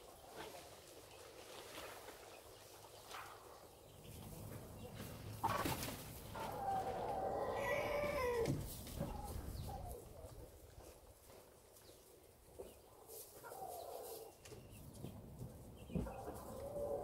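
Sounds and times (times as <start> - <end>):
chicken calling: 5.4 - 10.3.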